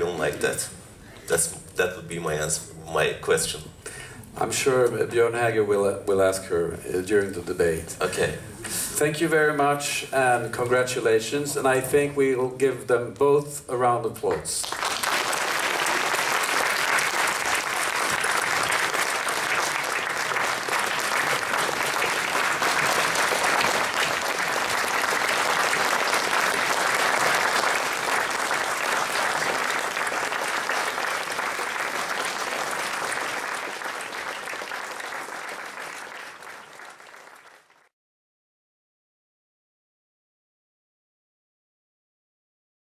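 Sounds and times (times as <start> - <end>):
audience applauding: 14.6 - 37.9.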